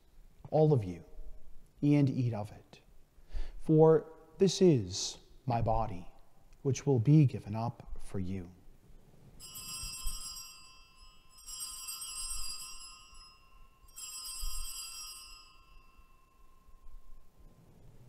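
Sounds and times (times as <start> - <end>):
altar bells ringing: 9.4 - 17.5.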